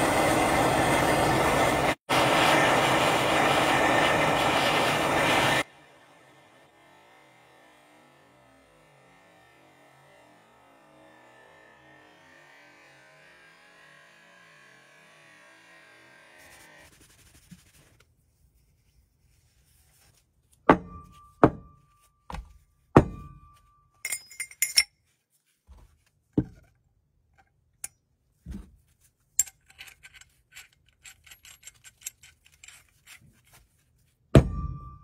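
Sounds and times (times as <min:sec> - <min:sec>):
metal parts clinking: 0:24.0 - 0:25.0, 0:29.3 - 0:33.3.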